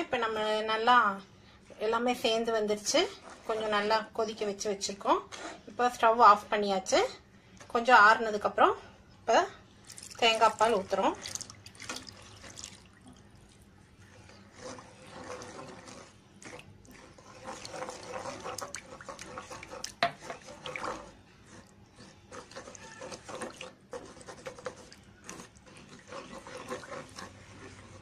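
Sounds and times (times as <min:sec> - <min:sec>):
spatula stirring and scraping: 0:01.6 - 0:28.0
liquid pouring into a pan: 0:11.2 - 0:13.6.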